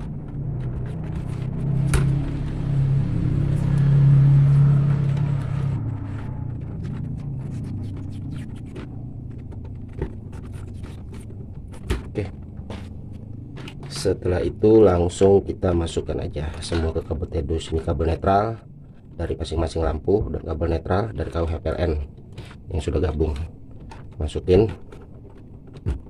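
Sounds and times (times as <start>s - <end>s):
tape pulled off roll rasping: 0.0s - 11.9s
steady low rumble: 0.0s - 22.3s.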